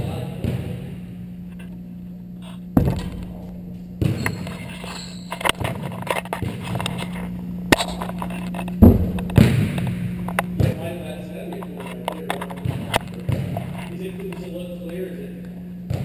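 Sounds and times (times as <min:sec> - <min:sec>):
steady low hum: 0:00.0 - 0:16.0
basketball bouncing on wooden floor: 0:02.8 - 0:04.5, 0:08.8 - 0:10.8.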